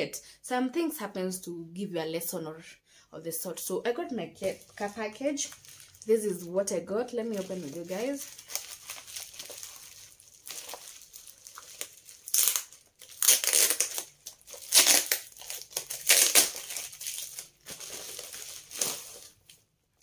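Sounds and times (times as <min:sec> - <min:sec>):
plastic packaging crinkling: 0:04.4 - 0:20.0.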